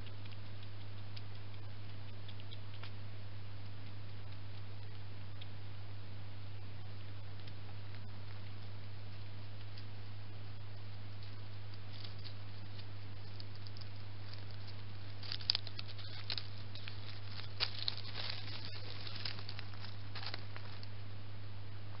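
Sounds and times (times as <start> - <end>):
steady low hum: 0.0 - 22.0
rustling in dry leaves: 14.2 - 21.0.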